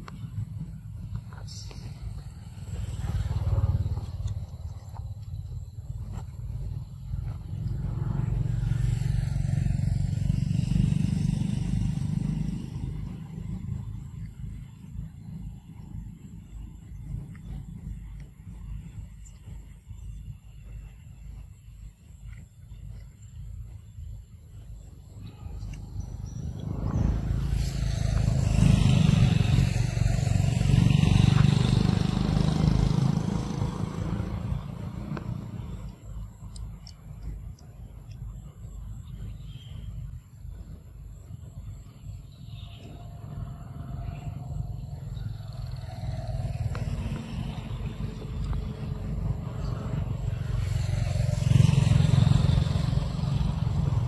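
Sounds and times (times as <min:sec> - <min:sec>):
vehicle passing by: 0:00.6 - 0:19.5, 0:25.6 - 0:36.5, 0:41.8 - 0:54.0.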